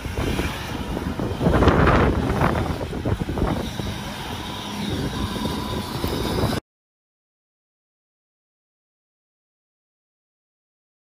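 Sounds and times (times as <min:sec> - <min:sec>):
wind gusts on microphone: 0:00.0 - 0:06.6.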